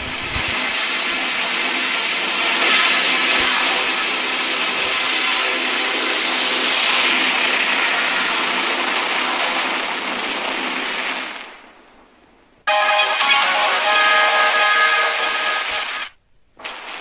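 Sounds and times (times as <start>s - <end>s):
logo jingle with sustained notes: 12.7s - 16.1s.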